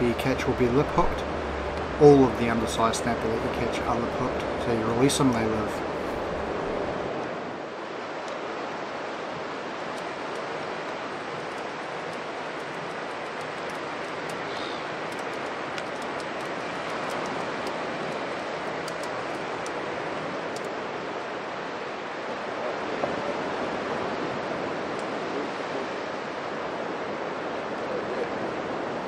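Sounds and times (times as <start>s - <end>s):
surf and wind rushing: 0.0s - 29.0s
faint light clicks: 9.9s - 19.8s.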